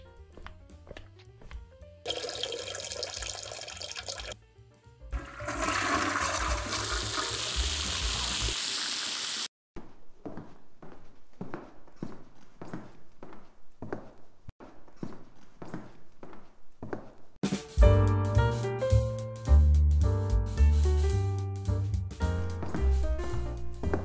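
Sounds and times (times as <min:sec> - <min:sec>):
running water: 0:02.1 - 0:04.4, 0:05.2 - 0:09.5
toilet flushing: 0:02.1 - 0:04.4, 0:05.2 - 0:09.5.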